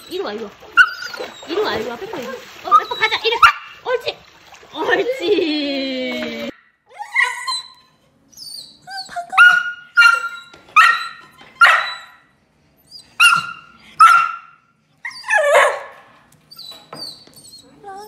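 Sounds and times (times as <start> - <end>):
dog yelping barks and whines: 0.7 - 1.7, 6.9 - 12.3, 12.9 - 17.8.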